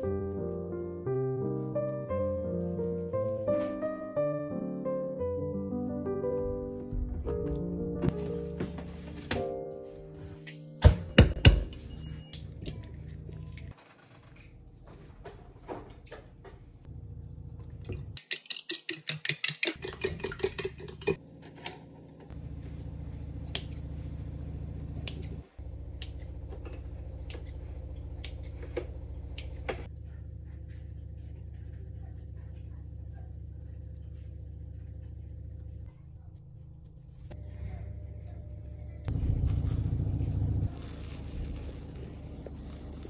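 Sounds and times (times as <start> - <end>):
low hum: 21.0 - 43.0.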